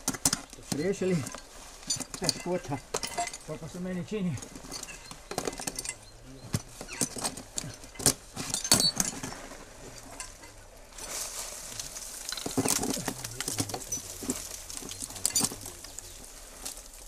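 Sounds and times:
metal gear clinking against rock: 0:00.0 - 0:10.6, 0:11.7 - 0:16.9
rustling hiss: 0:00.0 - 0:17.0.

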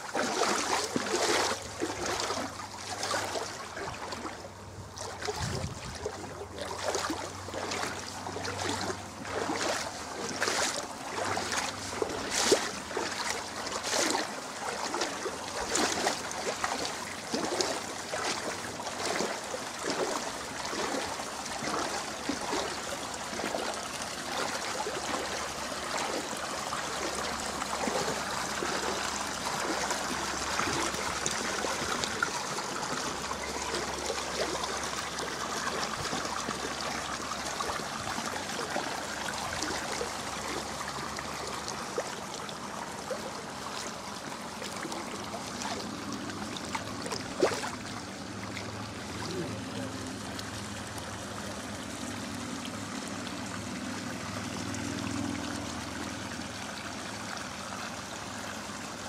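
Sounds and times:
splashing strokes: 0:00.0 - 0:40.7, 0:44.6 - 0:47.9
water sloshing around wading legs: 0:00.0 - 0:59.0.

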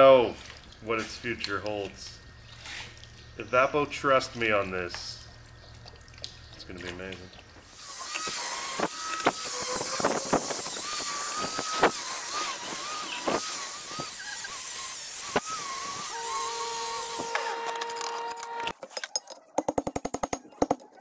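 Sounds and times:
angle grinder wire brush on metal: 0:07.6 - 0:18.8.

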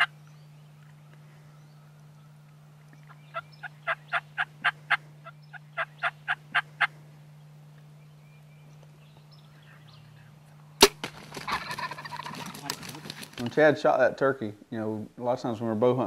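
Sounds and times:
turkey yelping: 0:03.3 - 0:07.0, 0:11.2 - 0:13.3.

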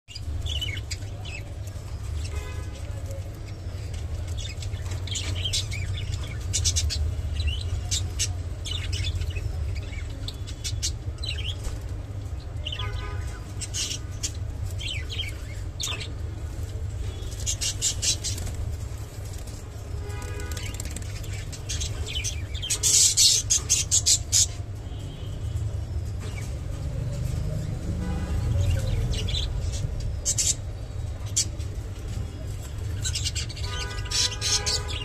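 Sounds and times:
budgerigars chirping: 0:33.0 - 0:35.0.

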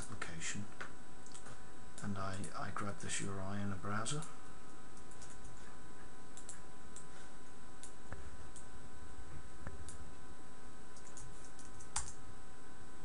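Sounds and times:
faint steady hum: 0:00.0 - 0:13.0
mouse and keyboard clicks: 0:11.0 - 0:12.2.

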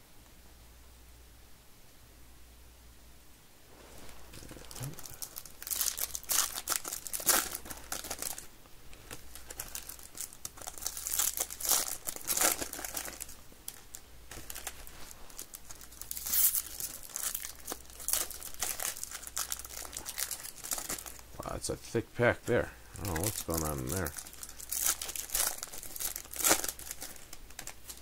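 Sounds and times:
wrapper crinkling and tearing: 0:04.2 - 0:21.4, 0:23.0 - 0:28.0.

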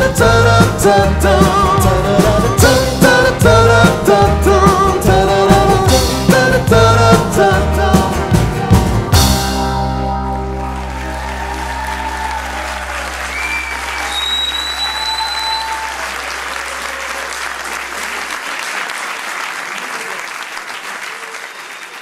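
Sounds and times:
audience applauding and cheering: 0:08.3 - 0:22.0
high whistles: 0:13.3 - 0:16.0.

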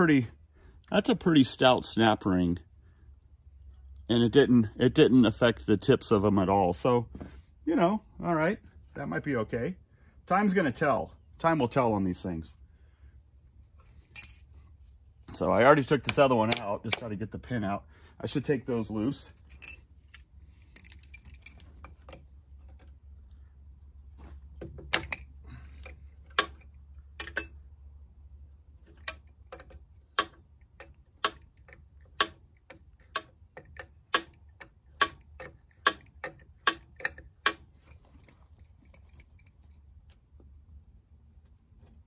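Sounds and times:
metallic clicks of hand tools: 0:16.0 - 0:17.1, 0:24.9 - 0:27.6, 0:28.9 - 0:39.8.

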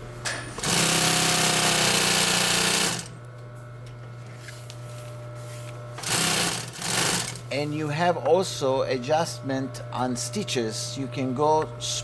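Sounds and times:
sewing machine stitching: 0:00.6 - 0:03.1, 0:06.0 - 0:07.4
sewing machine motor humming: 0:00.6 - 0:03.2, 0:06.0 - 0:07.5.

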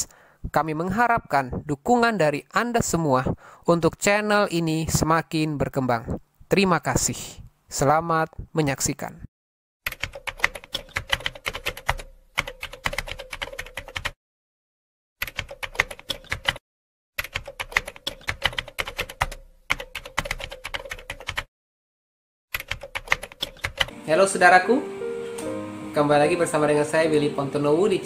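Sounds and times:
rapid keystroke clicks: 0:09.8 - 0:14.2, 0:15.2 - 0:16.6, 0:17.2 - 0:21.5, 0:22.5 - 0:23.9.

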